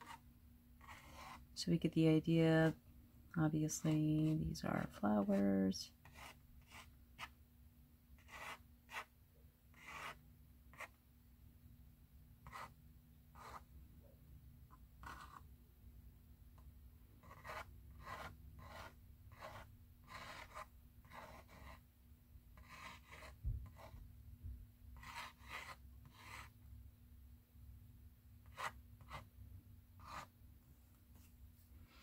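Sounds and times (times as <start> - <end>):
pen nib scratching on paper: 0.0 - 0.2, 0.8 - 1.5, 5.3 - 7.3, 8.2 - 9.1, 9.7 - 11.0, 12.4 - 12.7, 13.4 - 13.7, 15.0 - 15.4, 17.2 - 21.8, 22.6 - 24.0, 25.0 - 26.5, 28.4 - 29.3, 30.0 - 30.3.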